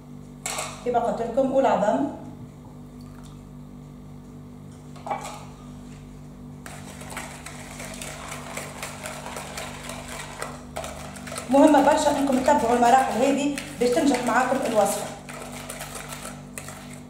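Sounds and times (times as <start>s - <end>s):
whisk clattering in bowl: 6.6s - 17.0s.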